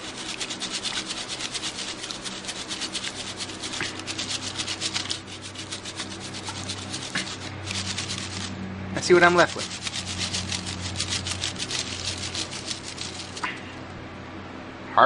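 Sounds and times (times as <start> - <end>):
mesh sieve scraping in clay slip: 0.0 - 13.8.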